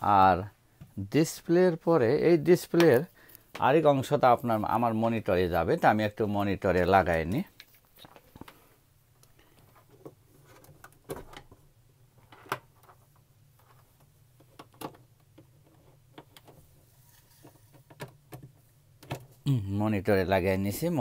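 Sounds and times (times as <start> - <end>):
clicks and knocks of handling: 12.2 - 16.7, 17.4 - 19.4.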